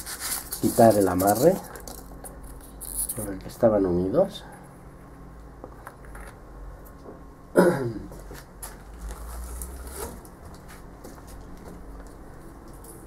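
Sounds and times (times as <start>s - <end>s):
man coughing: 7.5s - 8.2s.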